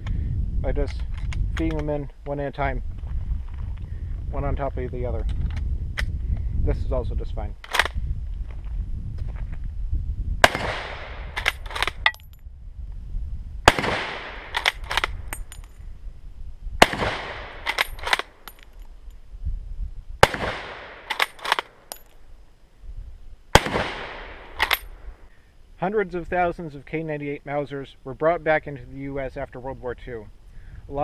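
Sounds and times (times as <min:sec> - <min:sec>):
rifle shots with echo: 0:10.4 - 0:11.9, 0:13.7 - 0:15.1, 0:16.8 - 0:18.5, 0:20.2 - 0:22.0, 0:23.5 - 0:24.9
rifle bolt clacks: 0:11.4 - 0:12.3, 0:14.4 - 0:15.8, 0:17.5 - 0:19.0, 0:21.0 - 0:22.2, 0:24.5 - 0:24.9.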